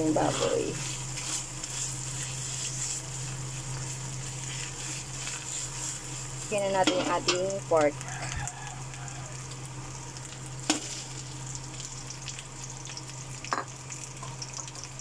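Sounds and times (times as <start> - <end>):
metal spatula stirring in wok: 0.0 - 7.7
food sizzling in hot oil: 0.0 - 15.0.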